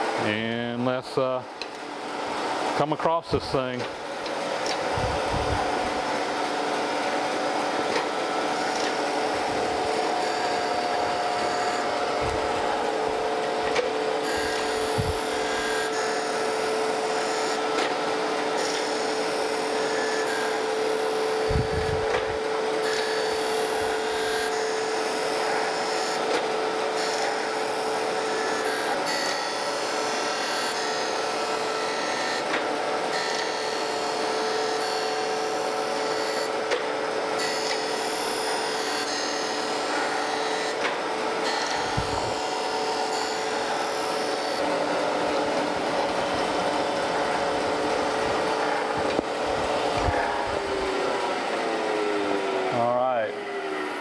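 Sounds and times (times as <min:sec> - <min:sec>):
machine humming: 0:00.0 - 0:54.0
grinding wheel hissing: 0:07.0 - 0:17.8.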